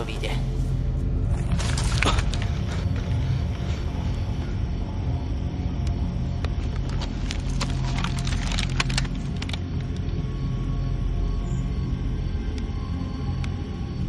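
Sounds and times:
low droning music: 0:00.0 - 0:14.0
rifle handling clicks and rattles: 0:06.4 - 0:09.6.

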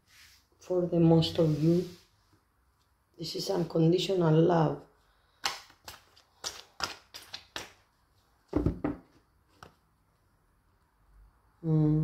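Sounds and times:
cards being shuffled: 0:05.4 - 0:07.9.

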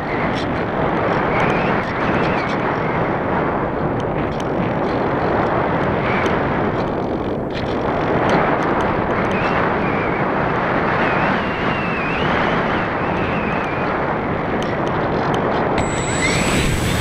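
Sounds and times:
faint high motor whine: 0:15.8 - 0:17.0.

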